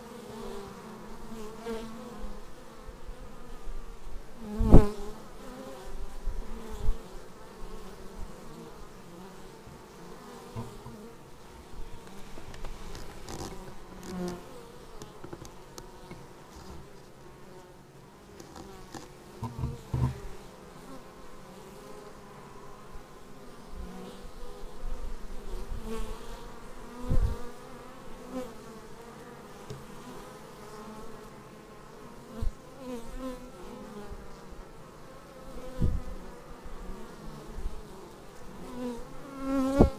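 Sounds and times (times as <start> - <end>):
honeybees buzzing: 0.0 - 39.9
short thumps: 10.5 - 11.1, 18.4 - 20.3.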